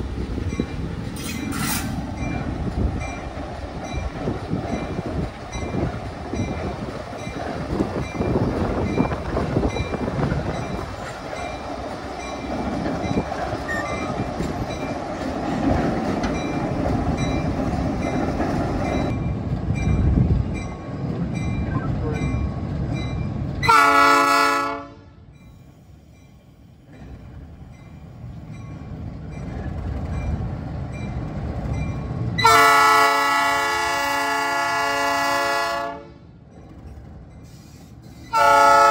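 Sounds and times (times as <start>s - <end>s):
diesel locomotive engine: 0.0s - 38.9s
wheels rumbling on rails: 0.0s - 38.9s
train horn blasts: 23.6s - 25.2s, 32.4s - 36.3s, 38.3s - 38.9s.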